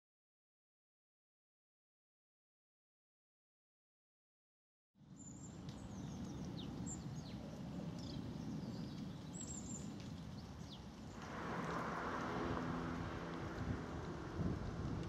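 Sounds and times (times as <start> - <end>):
small birds chirping: 5.1 - 14.2
low outdoor rumble: 5.2 - 15.0.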